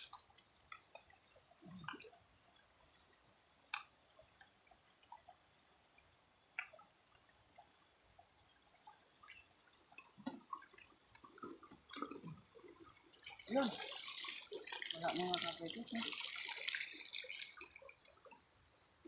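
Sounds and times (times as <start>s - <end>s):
water drips: 8.8s - 18.8s
water sloshing: 10.2s - 18.4s.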